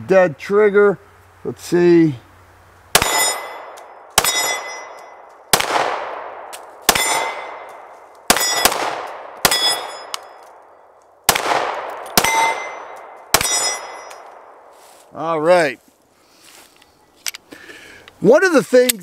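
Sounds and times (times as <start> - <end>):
pistol shots: 2.9 - 10.4, 11.3 - 14.5
steel plate target ringing: 3.0 - 5.3, 6.9 - 8.8, 9.4 - 10.4, 12.0 - 14.3.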